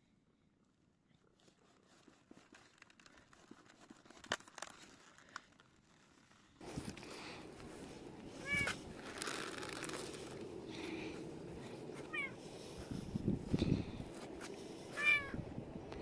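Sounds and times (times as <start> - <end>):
cabbage leaves rustling and crackling: 1.8 - 12.7.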